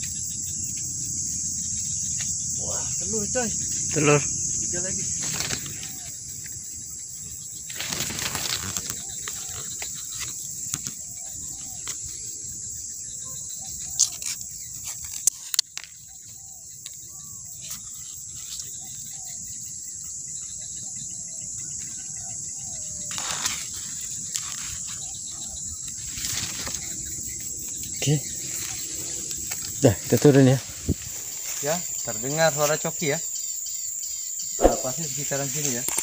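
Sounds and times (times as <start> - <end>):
crickets chirring: 0.0 - 36.0
leaves and twigs rustling: 2.0 - 12.4, 13.8 - 16.4, 23.0 - 33.2.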